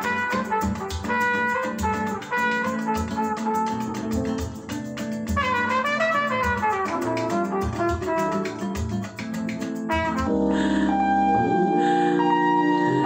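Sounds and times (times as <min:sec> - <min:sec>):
jazzy brass music over speakers: 0:00.0 - 0:09.2, 0:09.9 - 0:10.5.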